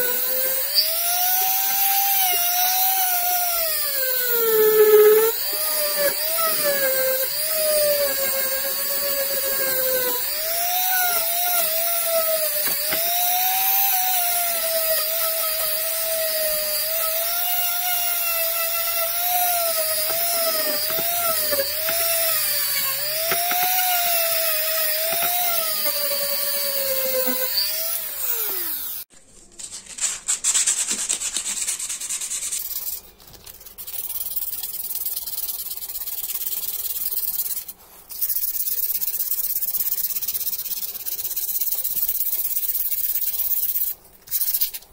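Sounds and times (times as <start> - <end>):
rotary wire brush whining on metal: 0.0 - 29.1.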